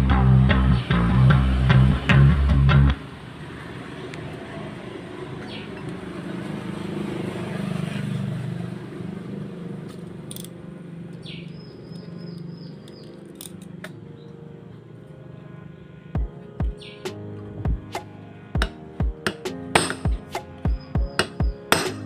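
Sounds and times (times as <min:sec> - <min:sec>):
low engine rumble: 0:00.0 - 0:07.6
metallic clicks of hand tools: 0:09.9 - 0:10.6, 0:12.9 - 0:14.0.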